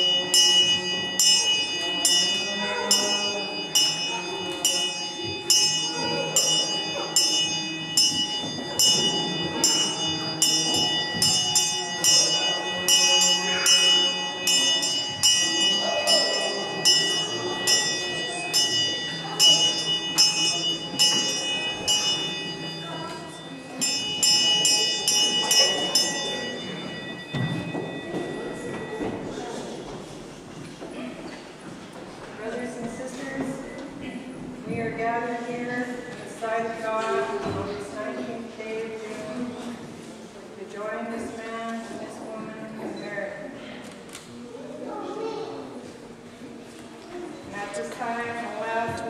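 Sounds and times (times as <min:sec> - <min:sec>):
brass handbells ringing: 0:00.0 - 0:29.9.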